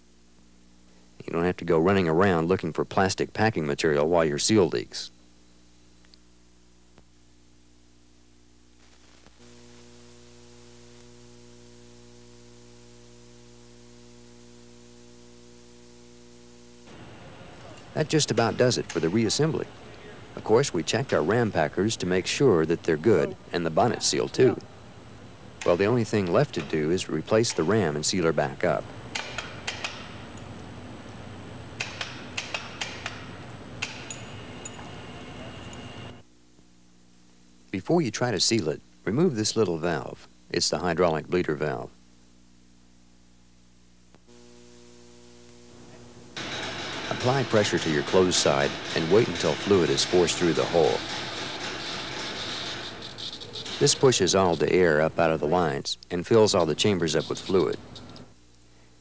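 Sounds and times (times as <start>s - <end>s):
electrical hum: 0.0s - 59.0s
steady hiss: 0.0s - 59.0s
faint click: 6.0s - 6.2s.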